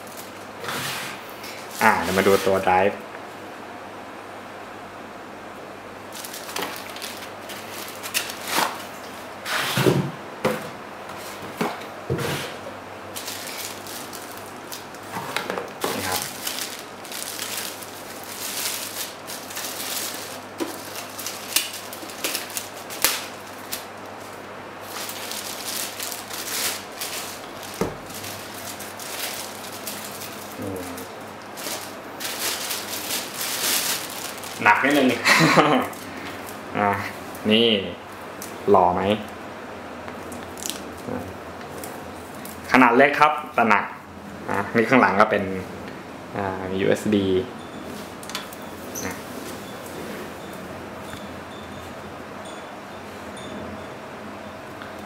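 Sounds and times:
plastic bag crinkling: 0:06.1 - 0:09.0, 0:13.1 - 0:36.7.

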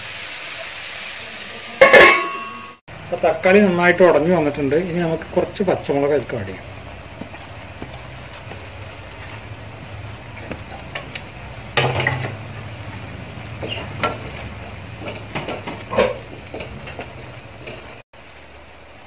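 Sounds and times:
curry bubbling in a pan: 0:05.0 - 0:19.0
spatula scraping a pan: 0:13.6 - 0:18.0.

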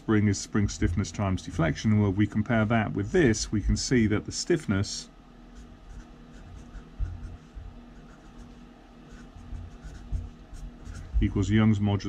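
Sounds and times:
marker scratching on paper: 0:05.6 - 0:11.2.

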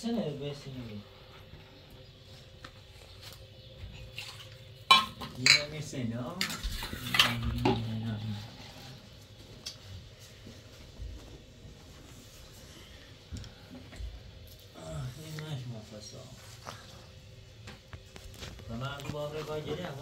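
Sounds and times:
metal dishes clattering: 0:04.0 - 0:07.9.

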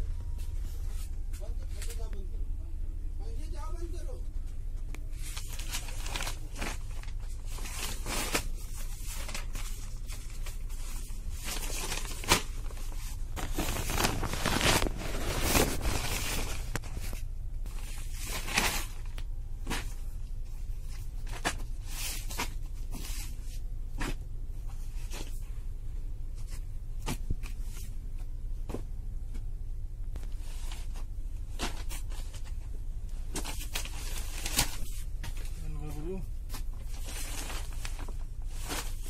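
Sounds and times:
paper wrapping crinkling and tearing: 0:05.1 - 0:20.0, 0:30.2 - 0:39.0.

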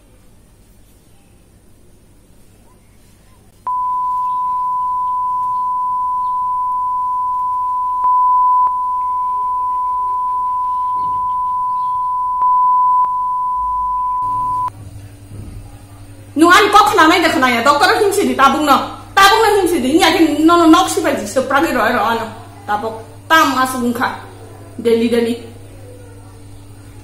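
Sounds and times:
censor bleep tone: 0:03.7 - 0:14.7
speech: 0:14.8 - 0:27.0.

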